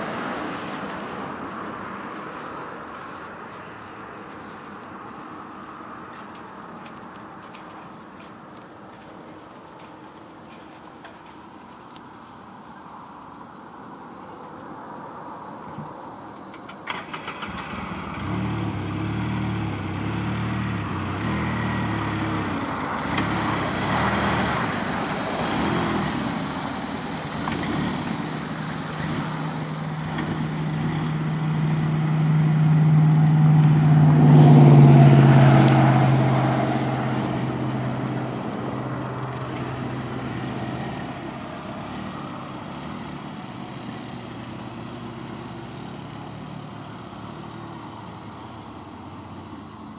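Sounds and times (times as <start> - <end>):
utility vehicle engine running: 16.5 - 49.9.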